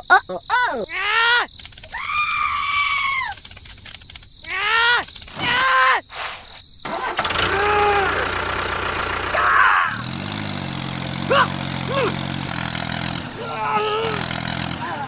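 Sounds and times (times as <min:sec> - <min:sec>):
engine starting and idling: 0:06.8 - 0:15.0.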